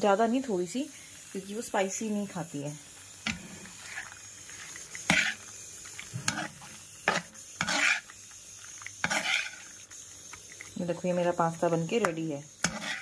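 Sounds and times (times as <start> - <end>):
spatula scraping a pan: 3.2 - 10.6, 11.9 - 13.0.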